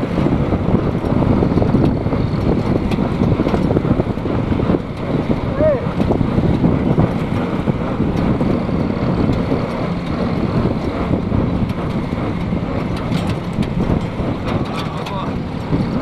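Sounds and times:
tractor diesel engine rumble: 0:00.0 - 0:16.0
wind buffeting microphone: 0:00.0 - 0:16.0.

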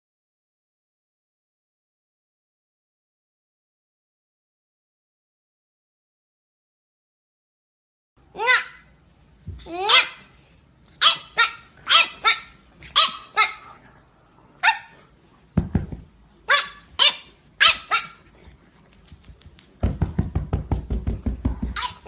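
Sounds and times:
puppy barking: 0:09.7 - 0:10.3, 0:11.0 - 0:13.8, 0:14.6 - 0:15.0, 0:16.4 - 0:18.3, 0:21.7 - 0:22.0.

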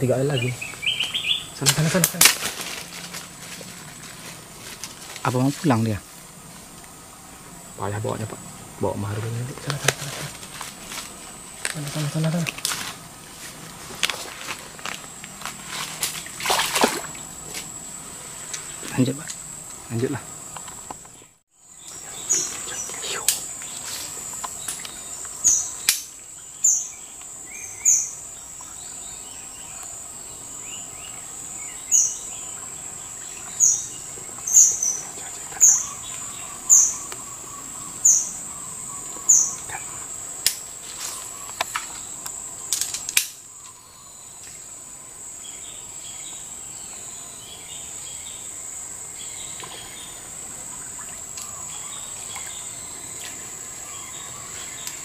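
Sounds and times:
faint chirps: 0:00.0 - 0:02.3, 0:18.0 - 0:55.0
bird giving sharp calls: 0:00.0 - 0:02.4
high-pitched insect drone: 0:00.0 - 0:55.0.

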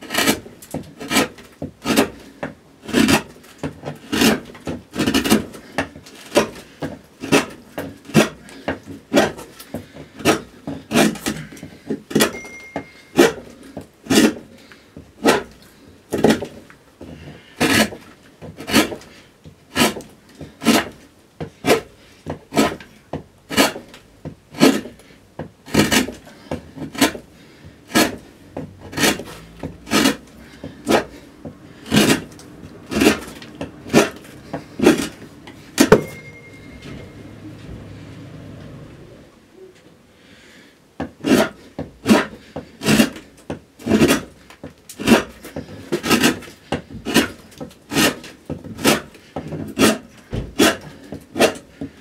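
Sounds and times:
hand gouge cutting wood: 0:00.0 - 0:12.4, 0:13.2 - 0:36.0, 0:41.0 - 0:52.0.

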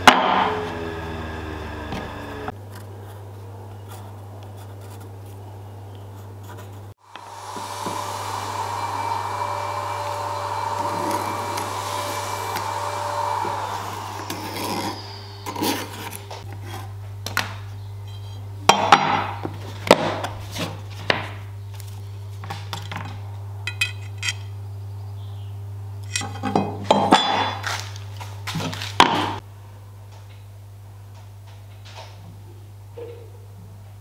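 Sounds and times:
low hum: 0:00.0 - 0:02.6, 0:07.0 - 0:16.5
steady rushing noise: 0:07.0 - 0:16.4
metal tools clinking on wood: 0:23.7 - 0:24.5.

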